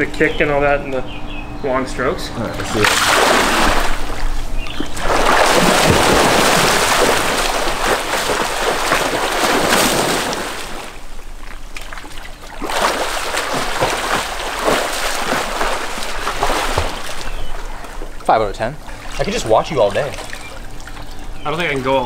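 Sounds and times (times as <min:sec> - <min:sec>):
swimmer splashing pool water: 0:02.6 - 0:22.0.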